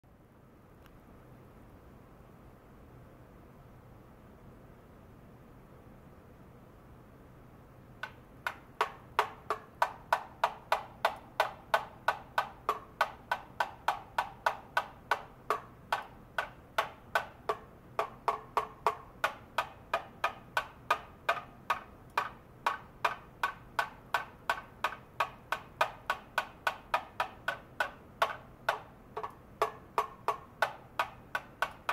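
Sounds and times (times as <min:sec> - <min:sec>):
plastic rod tapping metal parts: 0:08.0 - 0:31.9.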